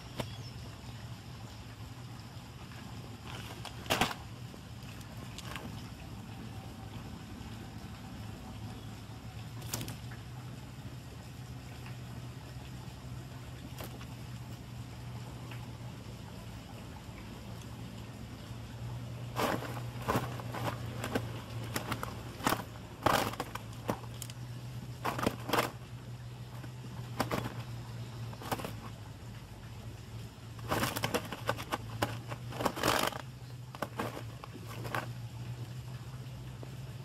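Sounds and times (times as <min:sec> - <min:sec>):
steady low hum: 0:00.0 - 0:37.0
net and plastic sheeting rustling: 0:03.2 - 0:04.3, 0:19.1 - 0:28.9, 0:30.6 - 0:35.1.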